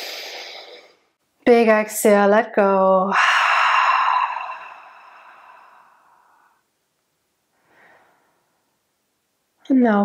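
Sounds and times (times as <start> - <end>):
woman sighing: 3.1 - 6.5.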